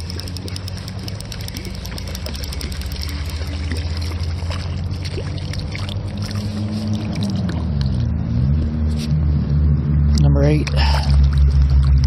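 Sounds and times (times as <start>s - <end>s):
fish splashing in water: 0.0s - 8.2s, 10.7s - 12.0s
steady low hum: 0.0s - 12.0s.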